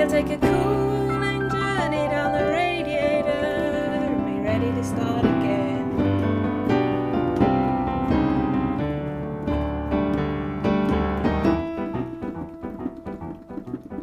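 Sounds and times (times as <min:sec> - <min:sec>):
keyboard piano chords: 0:00.0 - 0:14.0
low bass notes: 0:05.0 - 0:14.0.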